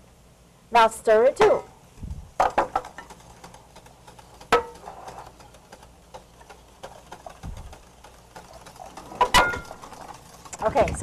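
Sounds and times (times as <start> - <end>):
utensil clinking against metal bowl: 2.5 - 5.5, 6.1 - 10.7.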